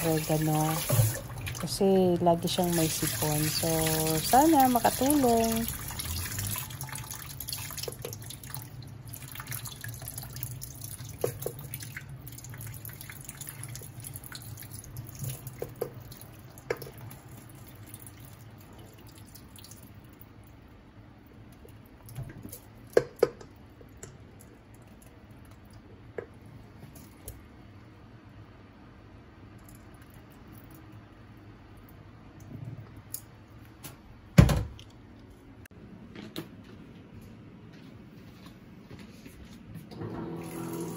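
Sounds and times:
tap water running into sink: 0.0 - 1.7, 2.5 - 17.3, 40.0 - 40.9.

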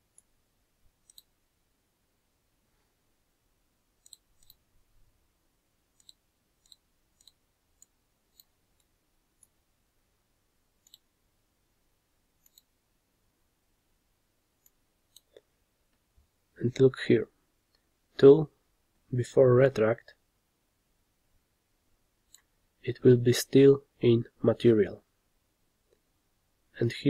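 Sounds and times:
faint computer mouse clicks: 1.0 - 1.3, 4.0 - 4.6, 10.8 - 11.1, 12.4 - 12.7.

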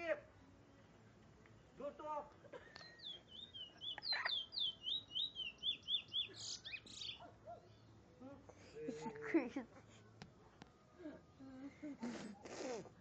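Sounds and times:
finch singing whistled notes: 2.8 - 7.9.

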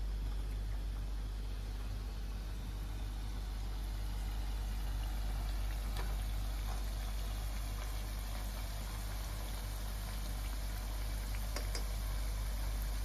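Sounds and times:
potatoes deep-frying in oil: 0.0 - 13.0
utensil clicking against pan: 11.5 - 12.0.

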